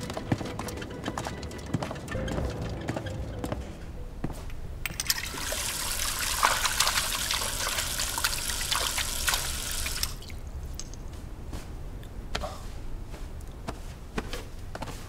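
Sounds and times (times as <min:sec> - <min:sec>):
tap water running into basin: 0:04.9 - 0:10.9
hands splashing water: 0:05.0 - 0:11.0.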